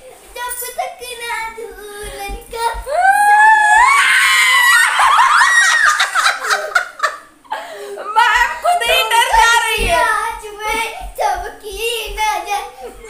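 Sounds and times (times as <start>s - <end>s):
woman and girl shrieking laughter: 2.9s - 7.2s.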